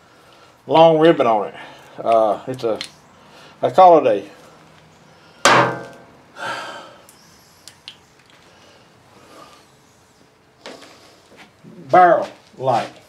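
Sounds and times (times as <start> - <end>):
man breathing out through nose: 6.4 - 7.1.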